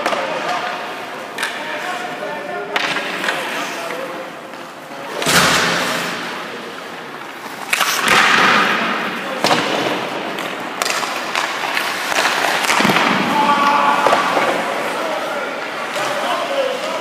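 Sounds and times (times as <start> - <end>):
skates scraping on ice: 0.0 - 17.0
pucks and sticks knocking: 2.6 - 5.6, 7.2 - 17.0.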